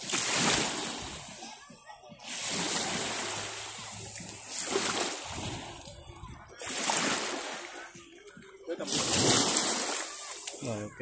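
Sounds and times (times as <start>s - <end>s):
surf washing on shore: 0.0s - 8.0s, 8.7s - 11.0s
water splashing: 0.0s - 11.0s.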